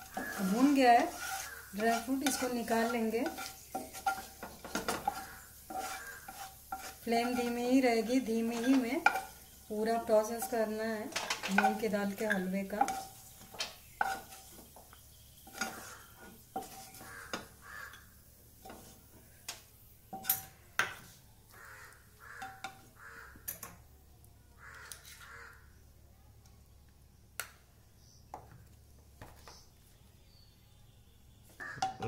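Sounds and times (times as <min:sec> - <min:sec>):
wooden spatula scraping a pan: 0:00.0 - 0:19.3.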